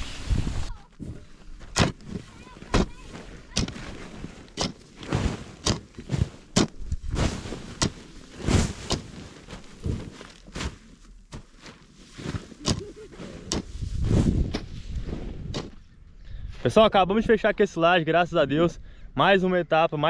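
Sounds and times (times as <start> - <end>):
hoe chopping into loose earth: 1.6 - 2.9, 3.5 - 10.8, 12.2 - 12.8.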